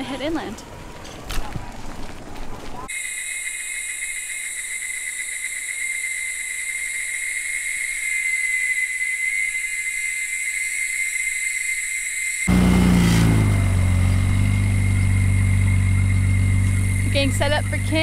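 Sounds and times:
insects chorus high tones: 2.9 - 12.5, 13.8 - 18.0.

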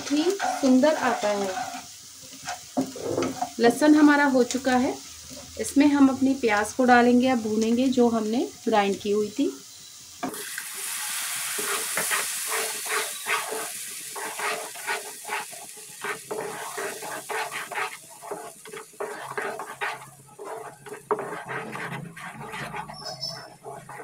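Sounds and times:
wooden spatula scraping pan: 0.0 - 3.6, 11.5 - 24.0
onion paste sizzling in hot oil: 0.0 - 24.0.

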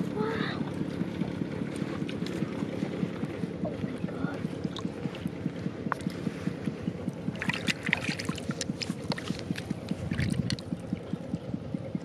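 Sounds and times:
hands splashing in muddy water: 7.4 - 10.7.

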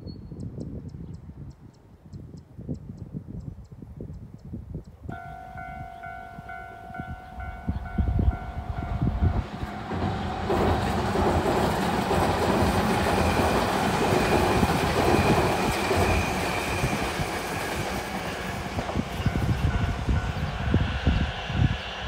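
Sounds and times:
wind buffeting microphone: 0.0 - 22.0
train passing at speed: 5.1 - 22.0
rail clatter: 7.4 - 20.3.

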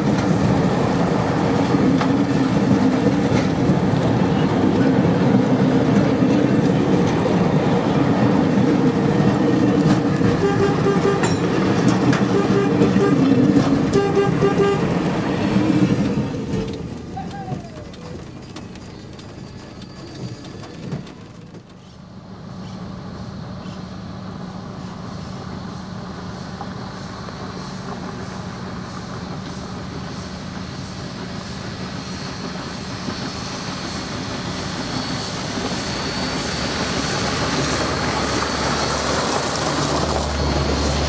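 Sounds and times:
steam train rumbling past: 0.0 - 41.0.

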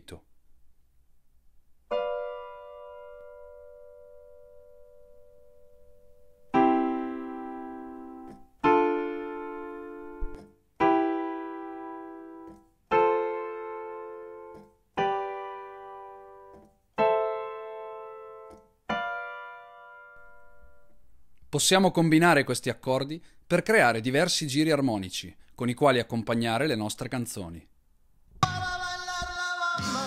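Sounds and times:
piano chords ringing: 1.9 - 21.1.

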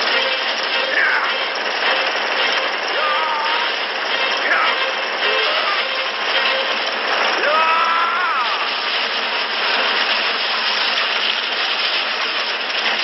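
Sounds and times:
shattering debris roar: 6.4 - 13.0.

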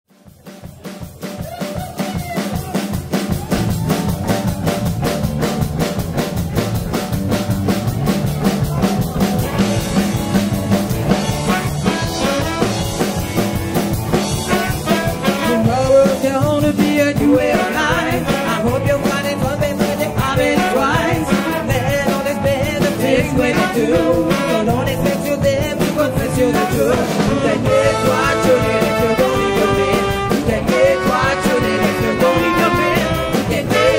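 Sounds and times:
live soul band playing: 0.2 - 33.9
horn section melody: 9.4 - 16.0, 17.3 - 19.1, 20.4 - 22.0, 23.2 - 25.0, 26.4 - 33.9.

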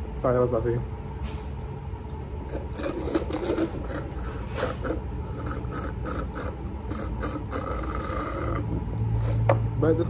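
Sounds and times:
low steady hum: 0.0 - 10.0
paper cup rubbing and scraping: 2.5 - 9.6.

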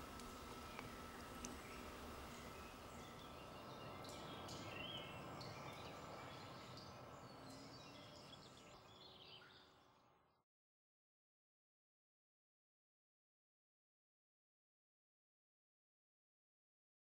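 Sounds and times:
faint outdoor background noise: 0.0 - 10.4.

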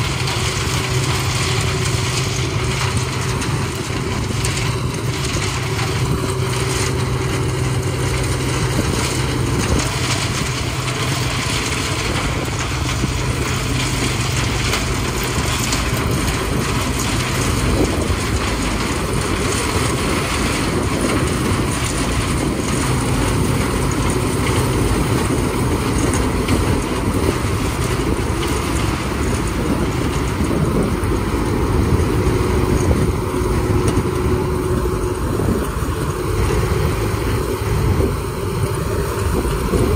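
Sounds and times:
combine harvester engine droning: 0.0 - 39.9.

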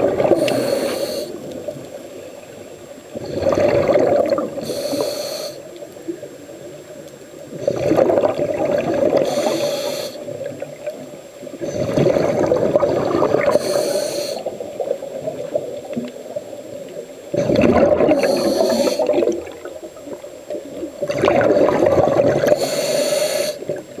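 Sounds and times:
gurgling rush of exhaled bubbles: 0.0 - 0.9, 3.1 - 4.7, 7.6 - 9.6, 11.6 - 13.8, 17.3 - 19.8, 21.0 - 22.7
regulator hiss: 0.0 - 3.5, 4.4 - 7.6, 9.1 - 10.6, 13.3 - 20.9, 22.2 - 24.0.

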